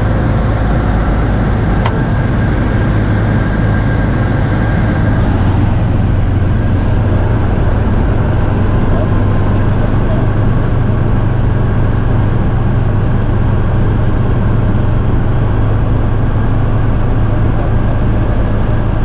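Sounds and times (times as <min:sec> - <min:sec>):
aircraft engine and propeller drone: 0:00.0 - 0:19.0.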